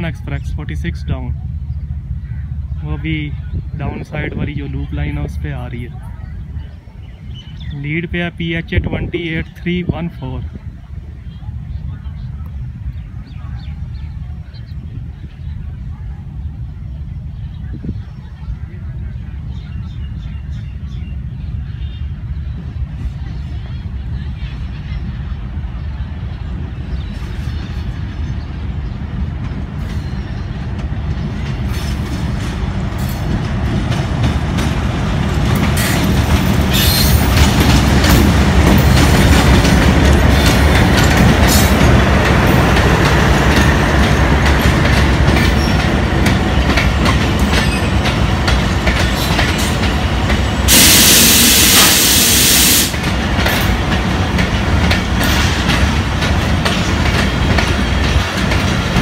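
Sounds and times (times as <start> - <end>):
diesel locomotive rumble: 0.0 - 59.0
train wheels clattering over rail joints: 29.2 - 51.1, 52.8 - 59.0
loud even hiss: 50.7 - 53.1.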